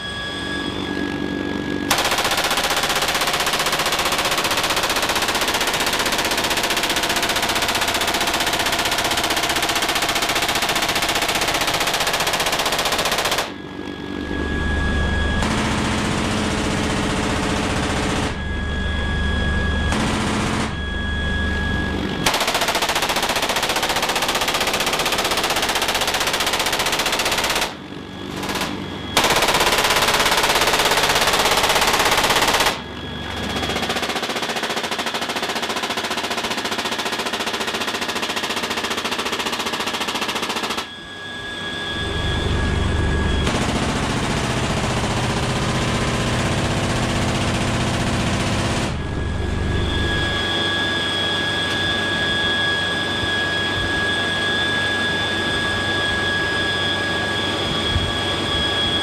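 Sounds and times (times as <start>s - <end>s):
helicopter engine whine: 0.0s - 59.0s
helicopter rotor drone: 0.0s - 59.0s
machine guns firing bursts: 1.9s - 13.6s, 15.4s - 18.4s, 19.9s - 20.8s, 22.2s - 32.8s, 33.4s - 40.9s, 43.4s - 49.0s.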